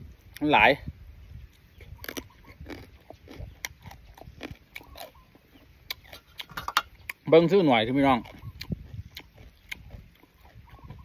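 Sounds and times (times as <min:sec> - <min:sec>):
man chewing food: 0:01.5 - 0:07.3, 0:08.2 - 0:11.0.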